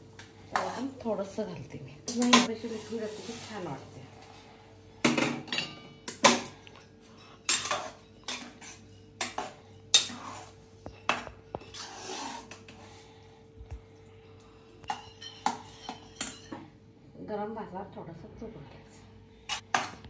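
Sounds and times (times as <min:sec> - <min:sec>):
metal ladle scraping pot: 0:07.5 - 0:12.9.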